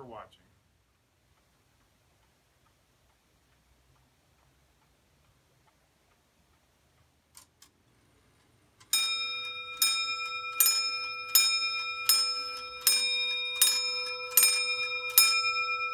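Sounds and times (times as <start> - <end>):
faint clock clicks: 0.0 - 15.9
clock striking dome bell: 8.9 - 15.9.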